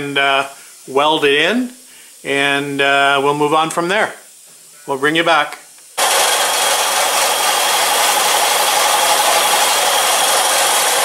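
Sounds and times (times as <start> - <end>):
workshop machine running: 6.0 - 11.0.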